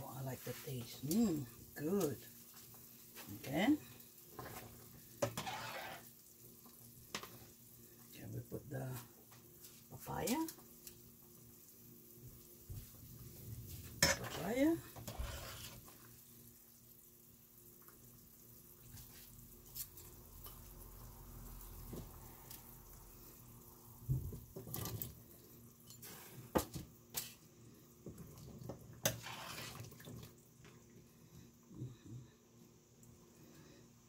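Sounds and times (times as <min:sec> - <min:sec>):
broth simmering in a pot: 0:00.0 - 0:34.0.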